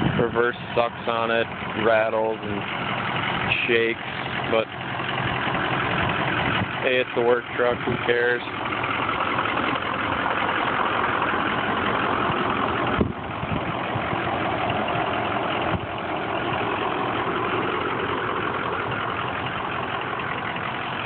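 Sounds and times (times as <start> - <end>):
diesel engine idling: 0.0 - 21.0
engine knocks: 0.0 - 21.0.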